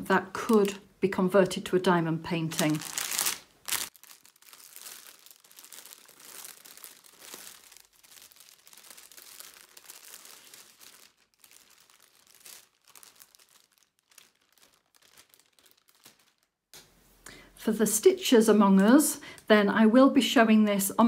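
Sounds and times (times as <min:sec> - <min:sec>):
plastic bag crinkling: 0:00.4 - 0:00.8, 0:02.4 - 0:16.7.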